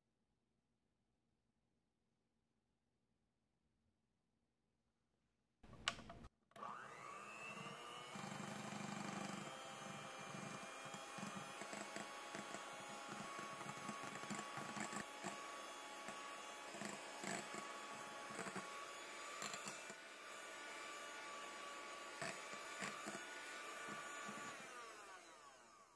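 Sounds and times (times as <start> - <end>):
hand mixer motor whine: 6.6 - 25.9.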